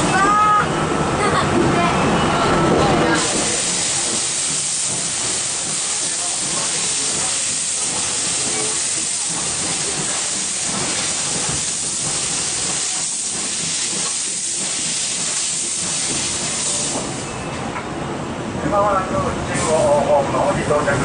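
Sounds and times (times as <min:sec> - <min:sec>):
steam locomotive hissing: 0:03.0 - 0:17.3.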